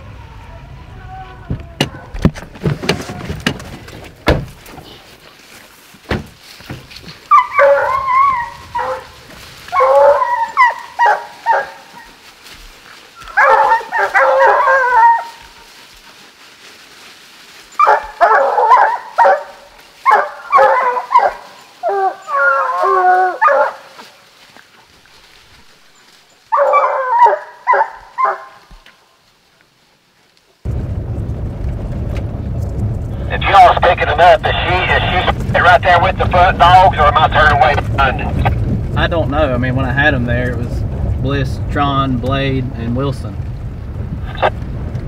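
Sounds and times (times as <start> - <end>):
hounds baying and howling: 7.2 - 16.2, 17.0 - 28.9.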